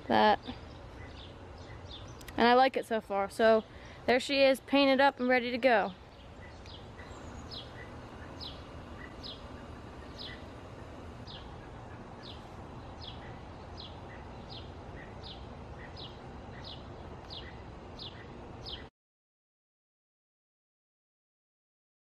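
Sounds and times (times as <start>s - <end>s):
bird chirping: 0.0s - 2.5s, 6.0s - 18.9s
low outdoor background noise: 0.0s - 18.9s.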